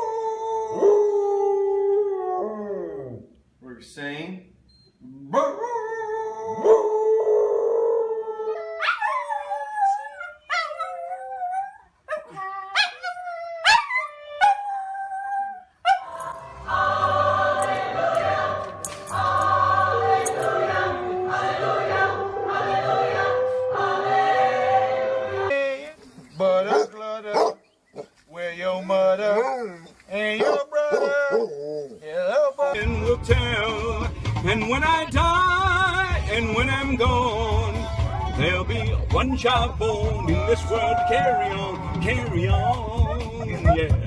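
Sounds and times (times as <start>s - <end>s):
dog long unbroken howl: 0.0s - 3.2s, 5.5s - 16.1s, 23.2s - 24.2s, 40.1s - 43.7s
dogs howling and yipping: 0.0s - 3.2s, 5.3s - 16.2s, 19.8s - 24.3s, 29.2s - 32.8s, 39.1s - 44.0s
music: 16.1s - 25.5s, 32.8s - 44.0s.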